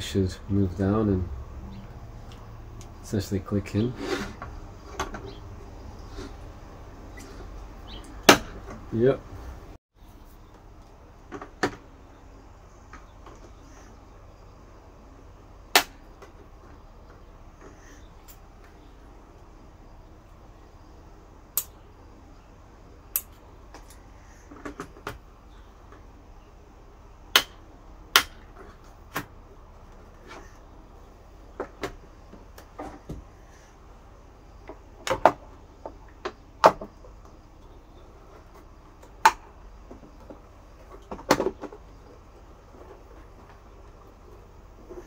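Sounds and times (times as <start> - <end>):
plastic clicks and knocks: 39.0 - 41.8.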